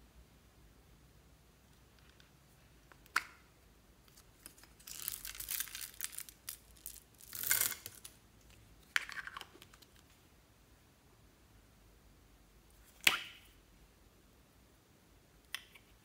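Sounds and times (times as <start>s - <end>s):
plastic beads pouring and rattling: 4.6s - 8.1s.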